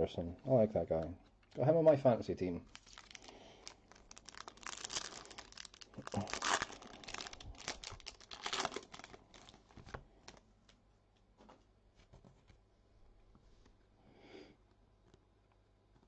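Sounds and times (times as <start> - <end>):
foil wrapper crinkling and tearing: 2.6 - 10.4.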